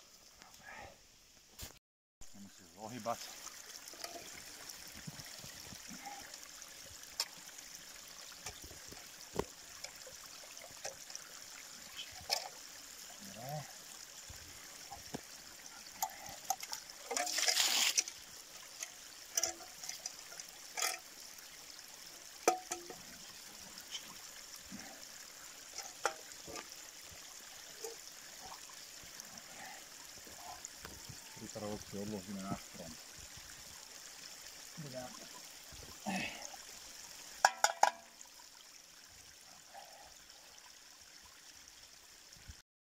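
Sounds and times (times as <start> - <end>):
forest stream trickling: 0.0 - 42.6
water gushing and splashing: 2.8 - 41.6
metal tin knocking and clinking: 22.5 - 23.0, 37.4 - 38.1.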